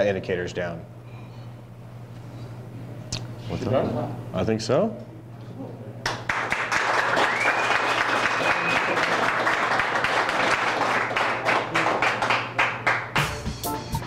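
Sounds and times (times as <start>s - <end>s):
audience applauding: 6.0s - 13.4s.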